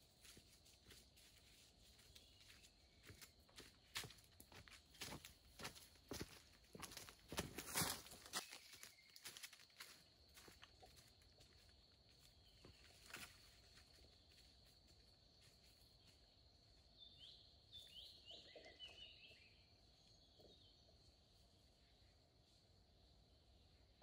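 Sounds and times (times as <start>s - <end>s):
insect drone: 0.0s - 24.0s
footsteps on leaf litter: 0.2s - 10.7s
bird chirps: 17.0s - 21.9s.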